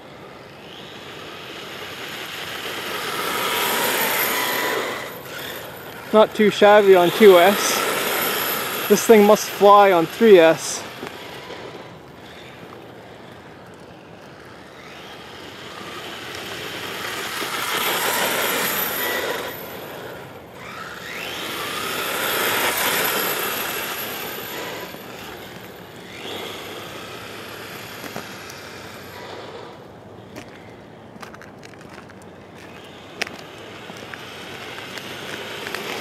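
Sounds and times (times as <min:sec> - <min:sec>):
electric motor whine: 0:00.0 - 0:30.9, 0:32.5 - 0:36.0
tyres hissing on asphalt: 0:01.7 - 0:11.9.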